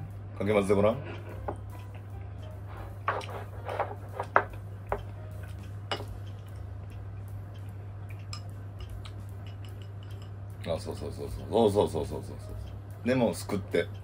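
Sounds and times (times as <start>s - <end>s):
low hum: 1.0s - 14.0s
chopsticks clinking ceramic bowls: 3.0s - 11.2s.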